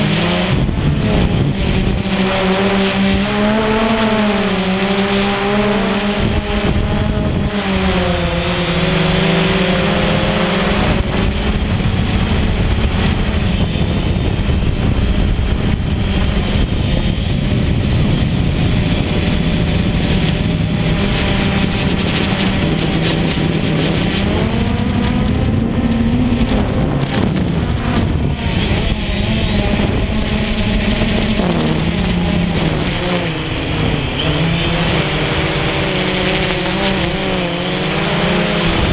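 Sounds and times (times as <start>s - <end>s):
drone propellers droning: 0.0s - 38.9s.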